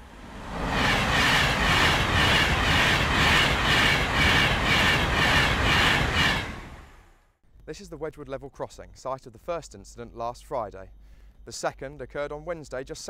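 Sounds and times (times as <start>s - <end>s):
passenger train passing: 0.0s - 7.1s.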